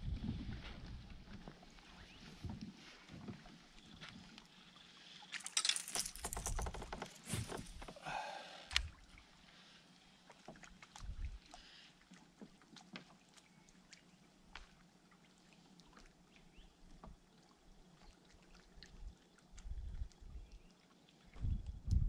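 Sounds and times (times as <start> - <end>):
water ticks and drips: 8.7 - 22.0.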